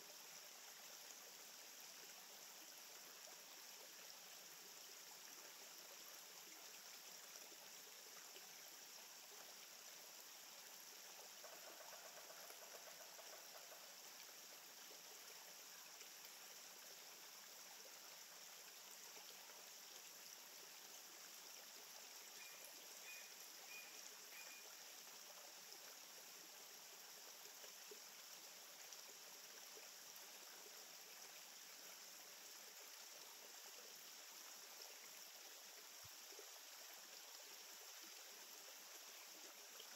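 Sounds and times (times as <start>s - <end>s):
faint rushing noise with hiss: 0.0s - 39.9s
faint high chirps: 22.3s - 24.7s.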